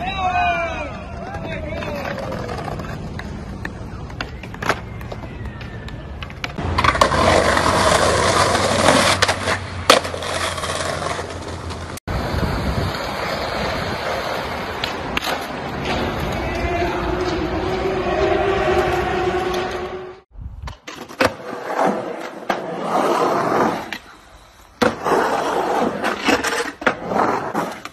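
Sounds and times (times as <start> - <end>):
skateboard wheels rolling on pavement: 0.0 - 27.9
skateboard clacking: 0.8 - 12.0, 12.6 - 17.9
skateboard rolling over brick paving: 6.2 - 18.0, 20.8 - 24.1, 24.8 - 27.9.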